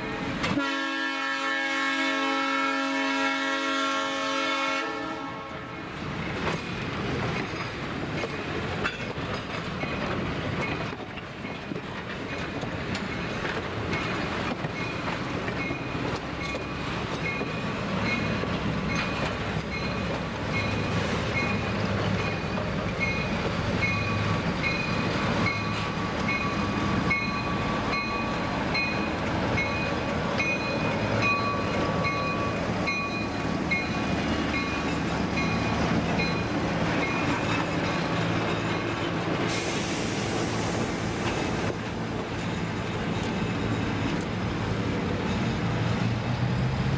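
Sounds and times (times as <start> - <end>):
diesel locomotive engine: 0.0 - 46.9
train wheels clicking on track: 5.9 - 46.9
crossing bell ringing: 14.0 - 39.1.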